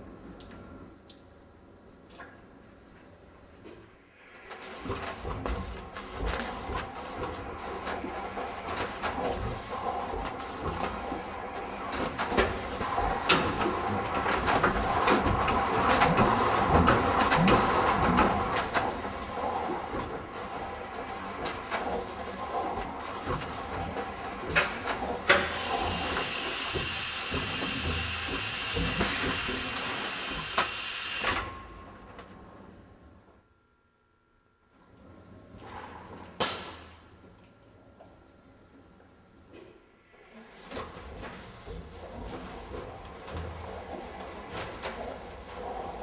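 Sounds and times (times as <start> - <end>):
wrapping machine hiss and rattle: 4.2 - 32.2, 40.2 - 46.0.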